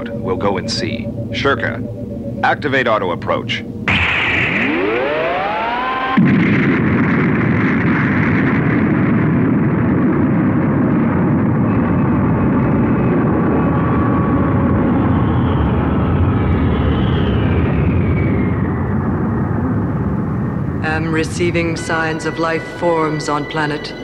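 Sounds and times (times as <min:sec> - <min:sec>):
high tone gliding down: 0:00.0 - 0:07.0, 0:20.8 - 0:24.0
cartoon spaceship thrusters: 0:03.9 - 0:06.4.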